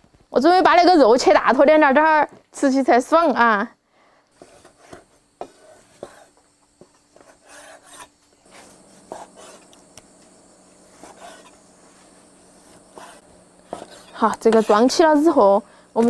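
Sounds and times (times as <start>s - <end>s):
blade scraping through meat: 7.2s - 9.8s, 10.9s - 11.6s, 12.5s - 15.4s.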